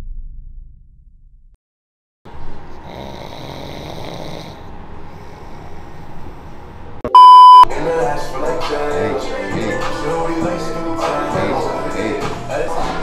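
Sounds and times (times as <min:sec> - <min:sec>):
person snoring: 0:02.8 - 0:05.7
loud electronic beep: 0:07.1 - 0:07.7.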